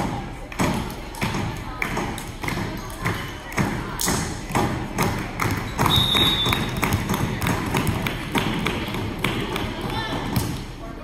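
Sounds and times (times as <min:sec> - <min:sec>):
claps and thumps in a gym: 0:00.0 - 0:10.8
crowd chatter: 0:00.0 - 0:11.0
thin whistle-like tone: 0:05.9 - 0:06.6.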